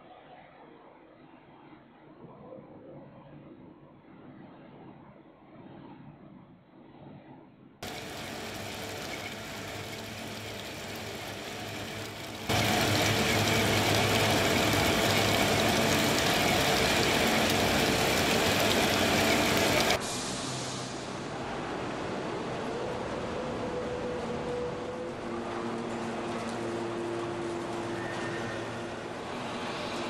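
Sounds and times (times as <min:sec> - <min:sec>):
constant hum: 0:07.8 - 0:20.0
metalworking machine noise: 0:07.8 - 0:22.0.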